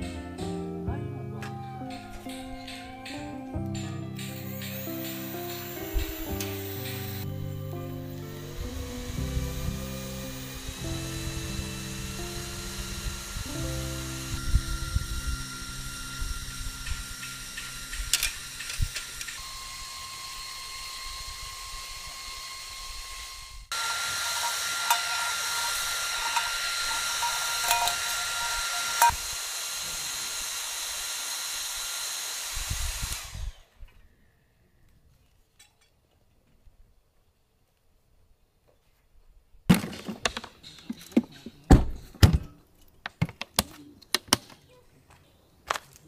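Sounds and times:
handheld fan whining: 1.5 - 33.8.

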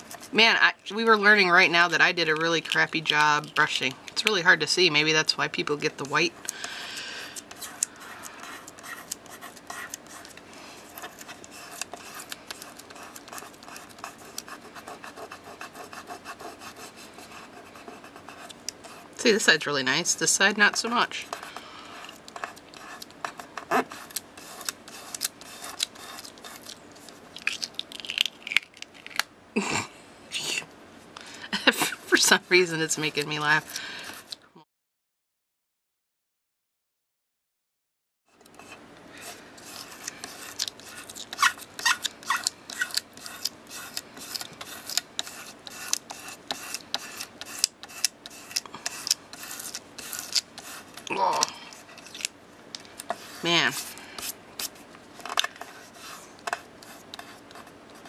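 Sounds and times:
fingertips rubbing card: 6.0 - 19.5, 21.2 - 27.8, 31.8 - 34.4, 38.5 - 52.3, 53.0 - 54.8, 55.4 - 58.0.

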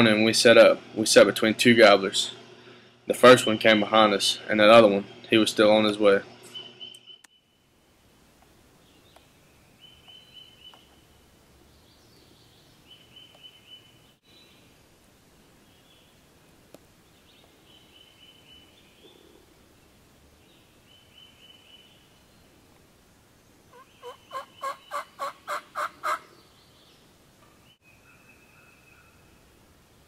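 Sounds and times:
turkey gobbling: 23.7 - 26.2.

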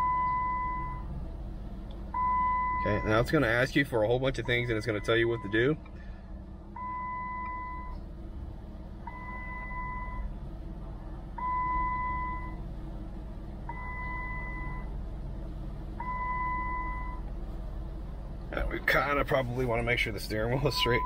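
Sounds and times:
dashboard warning chime: 0.0 - 1.1, 2.2 - 3.3, 4.4 - 5.7, 6.8 - 8.0, 9.1 - 10.3, 13.7 - 14.9, 16.0 - 17.2, 20.5 - 21.0
low steady hum: 0.0 - 21.0.

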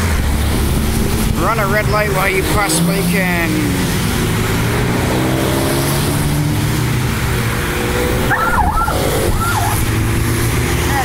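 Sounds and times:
sports car engines: 0.0 - 11.0
tyres hissing on wet pavement: 0.0 - 11.0.

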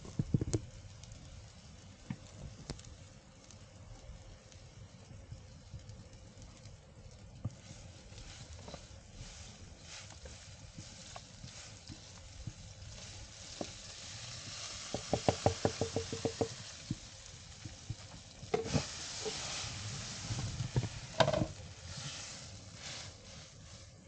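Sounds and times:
low sizzling hiss: 0.0 - 24.0
utensil knocking: 14.9 - 17.0, 20.8 - 21.5.

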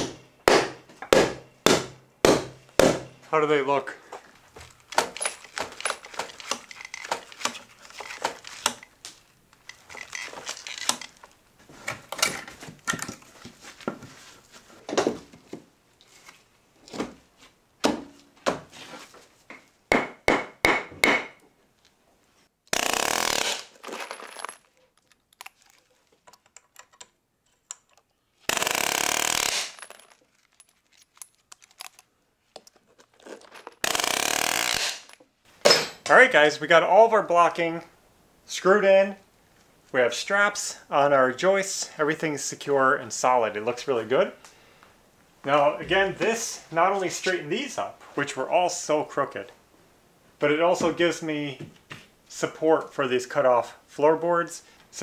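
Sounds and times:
lumber and tools knocking: 19.5 - 21.4
pneumatic nailer bursts: 22.7 - 23.8, 28.5 - 29.8, 33.8 - 35.1.

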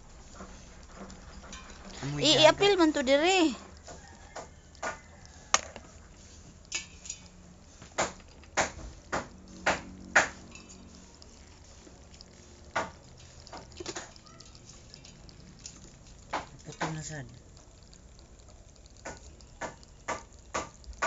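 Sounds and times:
crabs clicking in plastic basin: 0.4 - 21.0.

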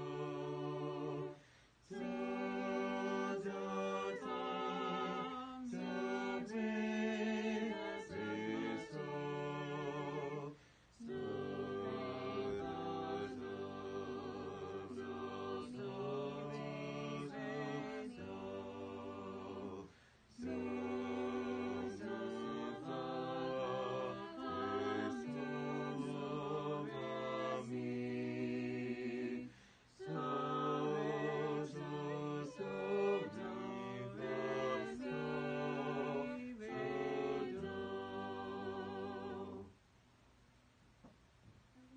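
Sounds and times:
vocal quartet singing a hymn: 0.0 - 39.8.

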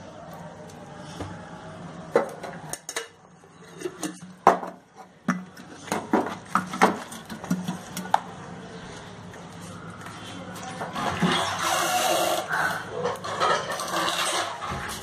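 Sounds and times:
metal kitchenware clinking: 13.0 - 15.0.

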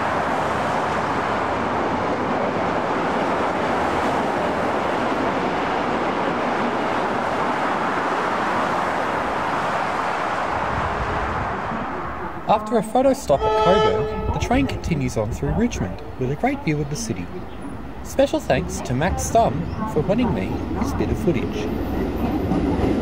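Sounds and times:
freeway traffic roar: 0.0 - 23.0.

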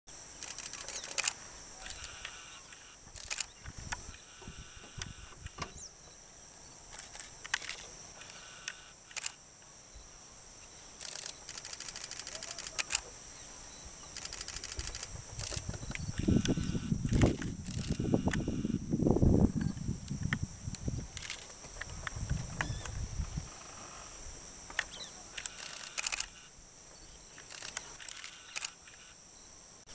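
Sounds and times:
camera shutters clicking: 0.4 - 3.5, 6.9 - 9.4, 11.0 - 13.0, 14.2 - 15.6, 21.2 - 21.5, 24.8 - 26.4, 27.4 - 29.0.

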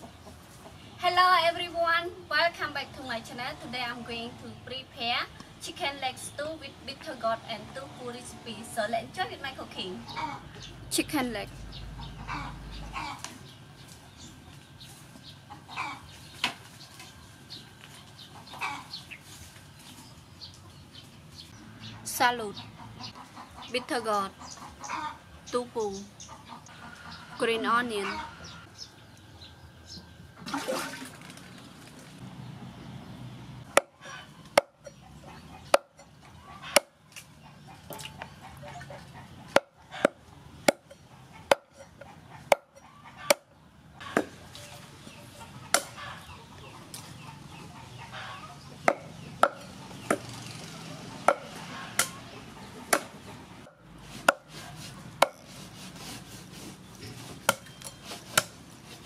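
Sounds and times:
cleaver chopping on wooden board: 33.7 - 35.0, 35.7 - 36.1, 39.5 - 43.5, 44.1 - 44.4, 45.7 - 46.0, 48.8 - 50.3, 51.2 - 52.2, 52.9 - 55.6, 57.4 - 58.6.

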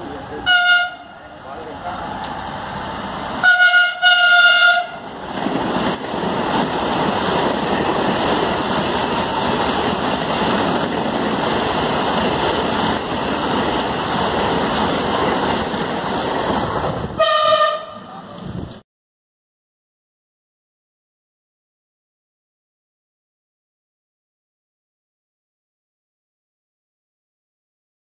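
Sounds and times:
train rushing past: 0.0 - 18.8
train horn blasts: 0.4 - 1.1, 3.4 - 5.0, 17.2 - 18.1.

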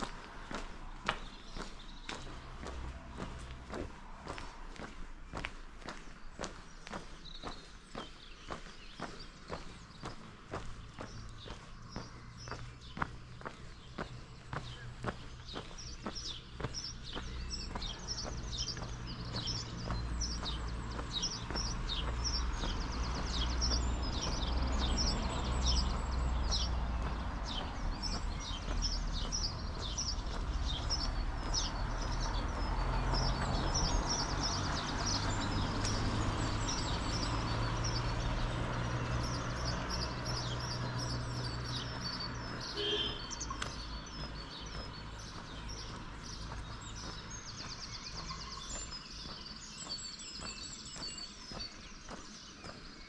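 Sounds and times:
songbirds chirping: 0.0 - 53.0.

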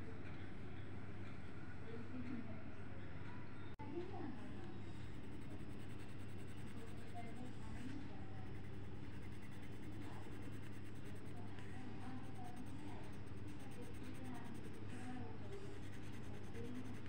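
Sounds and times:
steady low hum: 0.0 - 17.0
pencil scratching on paper: 4.9 - 17.0.

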